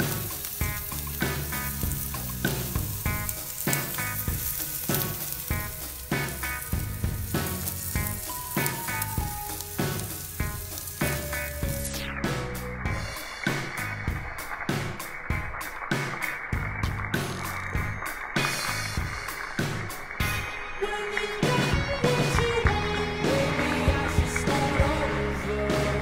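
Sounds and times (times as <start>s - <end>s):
chicken sizzling on grill: 0.0s - 20.4s
music with beat and bass: 0.0s - 26.0s.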